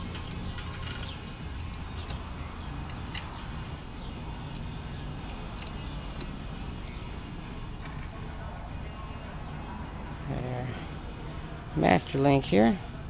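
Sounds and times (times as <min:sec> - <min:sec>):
light metallic chain clicks: 0:00.0 - 0:03.4, 0:04.4 - 0:07.0
low steady hum: 0:00.0 - 0:13.0.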